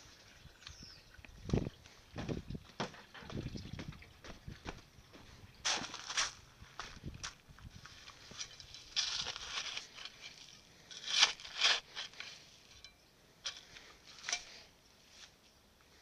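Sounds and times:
spade digging into gravelly soil: 8.0 - 14.7.

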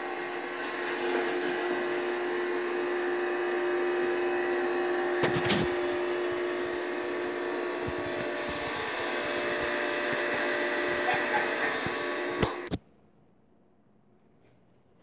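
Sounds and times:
machine hum and hiss: 4.5 - 12.8.

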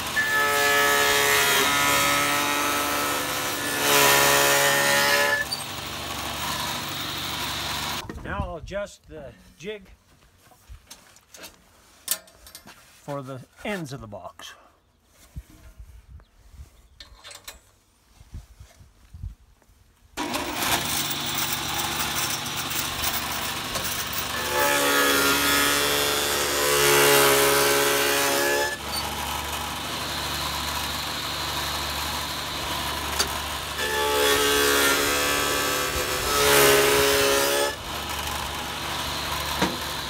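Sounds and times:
table saw cutting wood: 0.0 - 8.0, 20.2 - 40.0.

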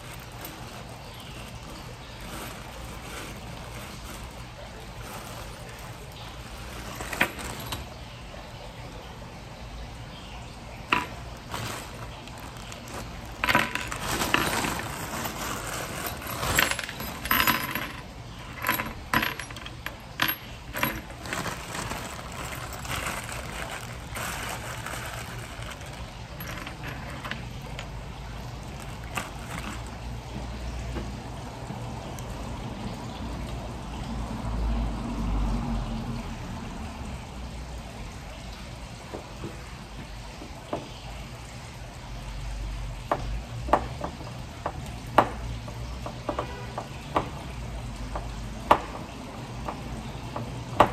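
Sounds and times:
plastic bag crinkling: 0.0 - 8.0, 10.9 - 17.5, 19.5 - 30.1
metal screws clinking: 5.0 - 8.0, 10.9 - 27.9, 28.7 - 30.0.

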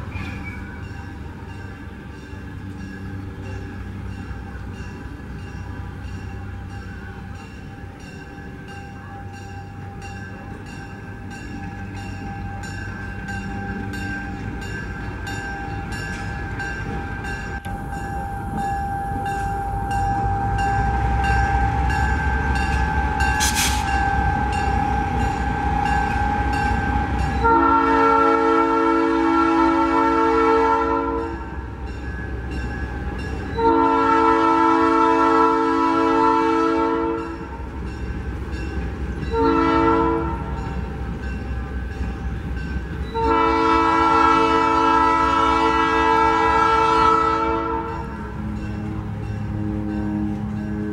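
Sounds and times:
diesel locomotive engine rumble: 0.0 - 50.9
train air horn blasts: 17.6 - 31.5, 33.6 - 37.5, 39.3 - 40.6, 43.1 - 50.9.

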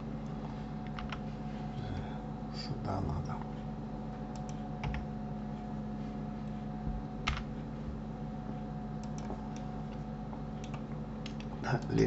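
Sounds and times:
steady low hum: 0.0 - 12.0
keyboard and mouse clicks: 9.0 - 10.0, 10.6 - 12.0.

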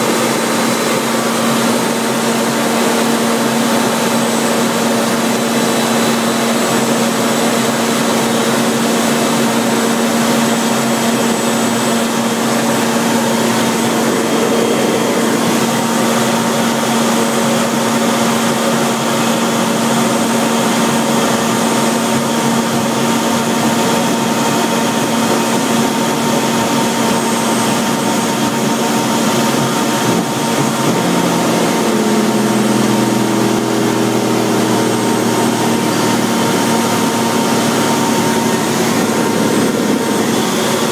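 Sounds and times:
deeper hum: 0.0 - 40.9
jet engine at takeoff power: 0.0 - 40.9.

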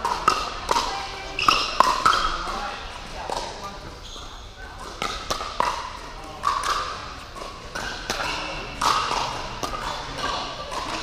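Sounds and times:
paddles striking plastic ball: 4.9 - 11.0.

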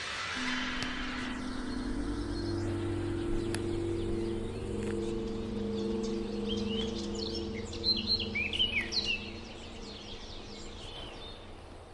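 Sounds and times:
bird chirping: 0.4 - 11.8
low steady hum: 0.4 - 11.9.

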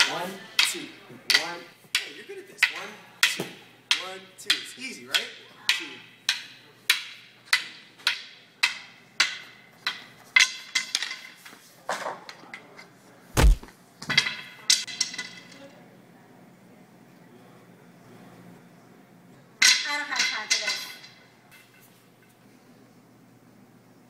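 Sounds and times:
rattan sticks clacking together: 0.0 - 11.2
heavy deep thump: 13.4 - 13.7.

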